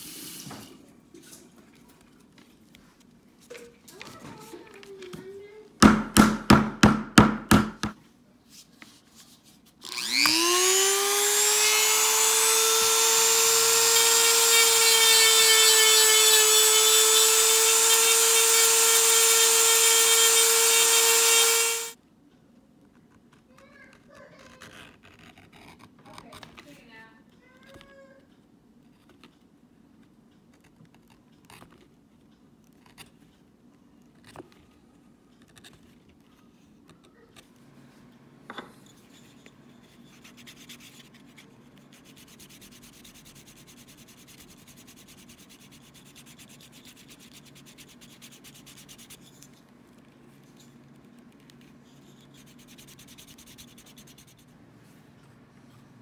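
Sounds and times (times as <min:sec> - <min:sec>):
tool clicks and scrapes on leather: 0:24.4 - 0:26.8.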